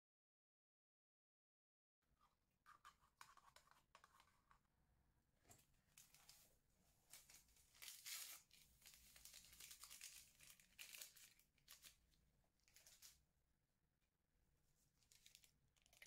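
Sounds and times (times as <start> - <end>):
paper crackles: 7.1 - 12.0
paper sachet crinkling and tearing: 7.1 - 12.0, 12.6 - 13.2.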